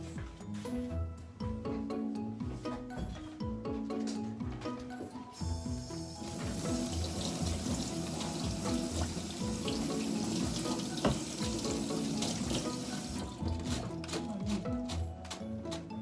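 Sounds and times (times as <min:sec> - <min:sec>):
background music: 0:00.0 - 0:16.0
tap water running into sink: 0:05.8 - 0:13.8.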